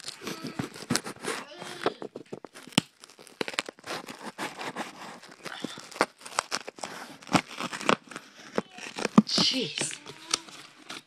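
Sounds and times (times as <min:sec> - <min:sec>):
cardboard box tape ripping: 0:00.0 - 0:11.0.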